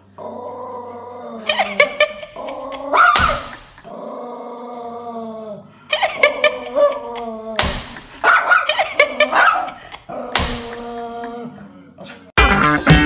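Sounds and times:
puppy growly whine: 0.0s - 1.6s, 3.8s - 5.7s.

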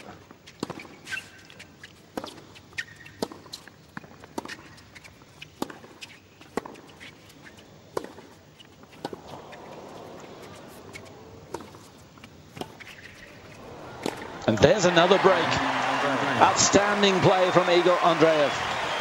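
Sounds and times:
tennis racket striking ball: 2.2s - 3.6s, 7.9s - 8.3s, 8.9s - 9.5s, 10.2s - 11.9s, 12.5s - 13.3s, 14.0s - 14.3s
crowd sound: 13.5s - 19.0s.

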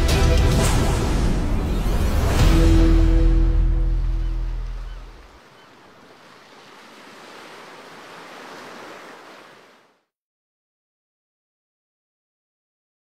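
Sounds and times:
background music: 0.0s - 5.3s
waves washing: 0.3s - 10.0s.

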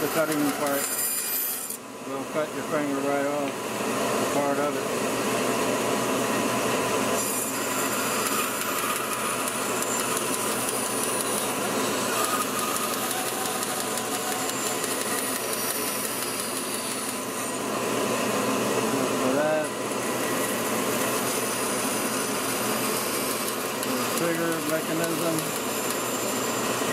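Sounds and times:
bandsaw cutting wood: 0.0s - 1.8s, 7.2s - 17.6s, 19.3s - 26.4s
dust collector vacuum: 0.0s - 26.9s.

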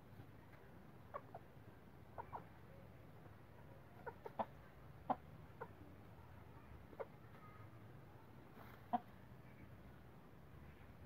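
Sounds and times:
hens clucking: 1.0s - 2.7s, 3.6s - 6.1s, 6.7s - 7.6s, 8.4s - 9.2s.

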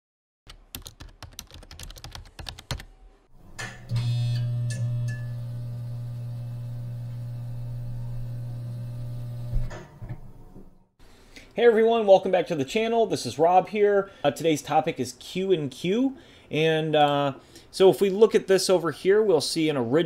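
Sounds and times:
computer keyboard typing: 0.5s - 2.9s.

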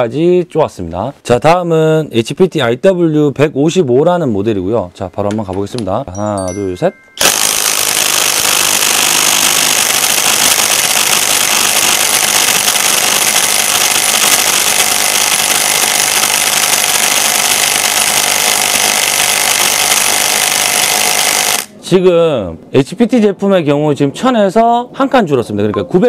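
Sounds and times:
impact wrench hammering: 7.2s - 21.8s.

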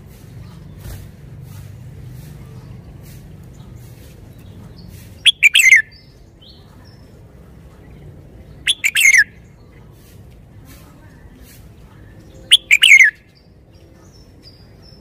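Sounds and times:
bird singing: 3.5s - 9.9s, 12.0s - 15.0s.

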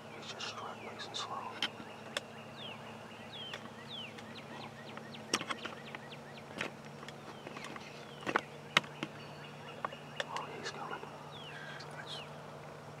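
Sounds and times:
faint low hum: 0.0s - 13.0s
sharp clicks: 9.8s - 10.8s.

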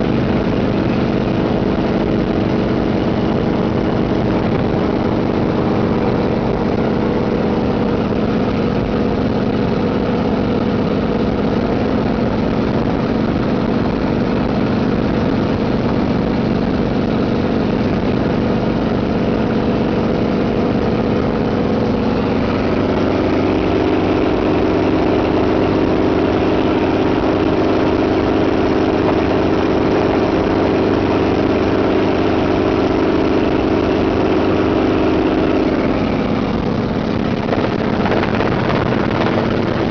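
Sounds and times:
airstream rushing over microphone: 0.0s - 39.9s
helicopter engine and rotor drone: 0.0s - 39.9s.

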